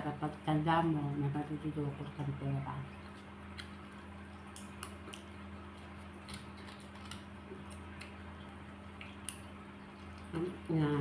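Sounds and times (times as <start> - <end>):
steady low hum: 0.0 - 11.0
crab shell clicks and crunches: 3.5 - 10.3.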